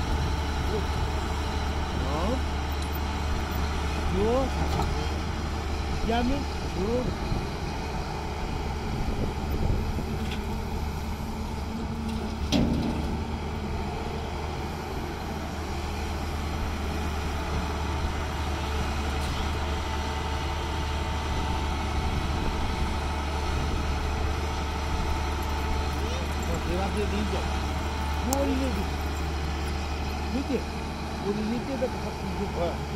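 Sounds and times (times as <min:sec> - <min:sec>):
excavator diesel engine running: 0:00.0 - 0:32.9.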